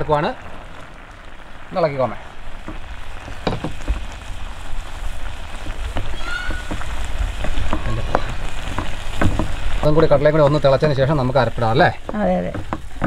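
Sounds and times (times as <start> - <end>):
curry simmering and bubbling: 0.0 - 13.0.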